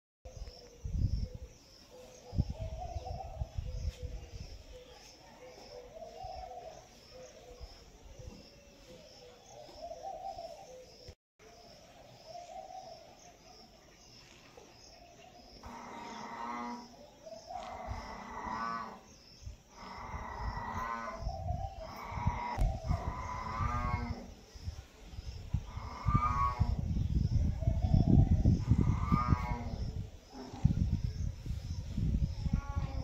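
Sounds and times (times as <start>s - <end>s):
long drawn-out animal calls: 15.6s - 19.1s, 19.7s - 24.3s, 25.6s - 26.9s, 28.4s - 30.8s.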